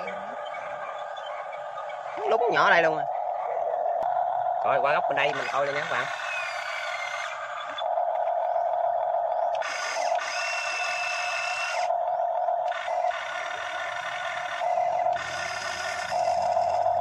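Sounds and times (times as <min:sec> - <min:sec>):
higher-pitched whine: 0:00.0 - 0:17.0
model excavator motor whining: 0:00.0 - 0:17.0.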